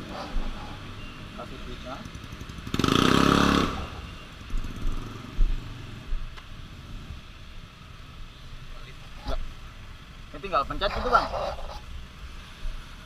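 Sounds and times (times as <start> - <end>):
motorcycle engine revving: 1.4 - 7.2.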